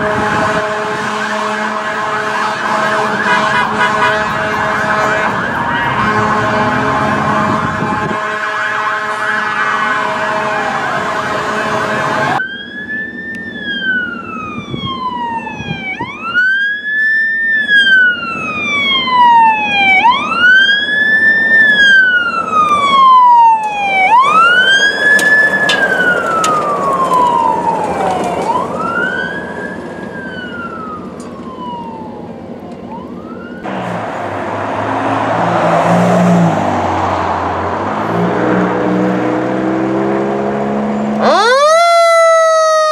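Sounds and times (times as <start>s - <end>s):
horn-like tones: 0.0s - 12.4s
fire engine rumble: 0.0s - 39.6s, 40.8s - 42.9s
siren wailing: 1.2s - 40.1s, 40.7s - 42.9s.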